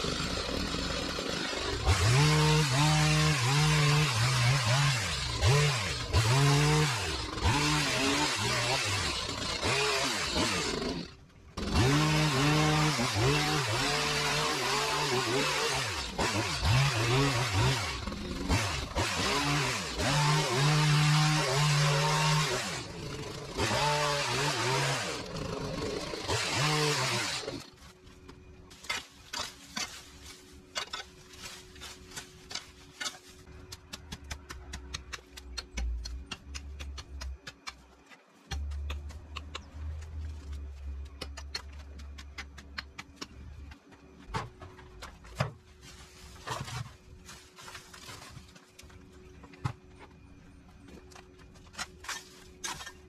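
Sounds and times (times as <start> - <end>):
small engine power tool revving: 0.0 - 27.6.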